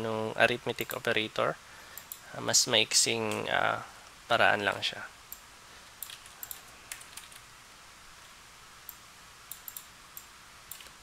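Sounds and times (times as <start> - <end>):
low steady hiss: 0.0 - 11.0
keyboard and mouse clicks: 6.0 - 7.4, 8.9 - 11.0.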